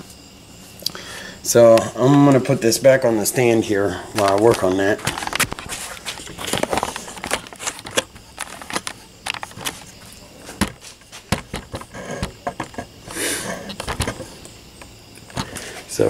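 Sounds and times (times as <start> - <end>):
clicks and knocks of handling: 4.2 - 12.9, 13.6 - 15.7.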